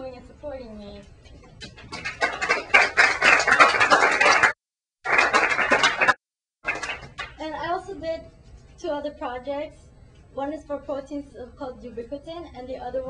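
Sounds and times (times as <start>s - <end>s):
audience applauding: 1.9s - 7.4s.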